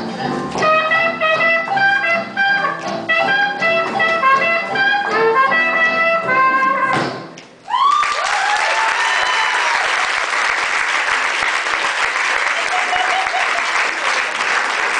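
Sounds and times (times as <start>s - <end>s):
swing jazz with brass: 0.5s - 7.0s
audience whooping: 7.6s - 10.5s, 12.3s - 14.5s
audience applauding: 7.7s - 14.9s.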